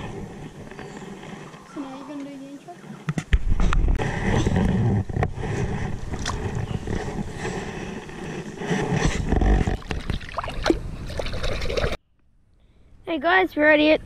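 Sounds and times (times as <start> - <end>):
camera handling rumble and knocks: 3.0 - 10.2
water sloshing: 9.5 - 12.0.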